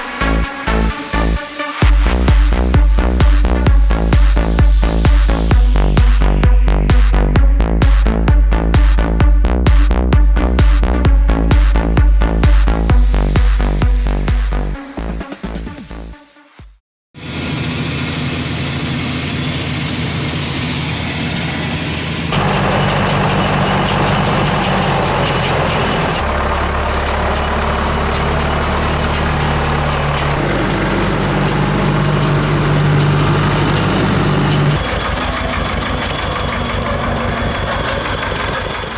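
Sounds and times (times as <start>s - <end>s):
diesel machinery running: 0.0s - 14.9s, 17.2s - 38.9s
tractor idling with rapid chug: 17.3s - 38.9s.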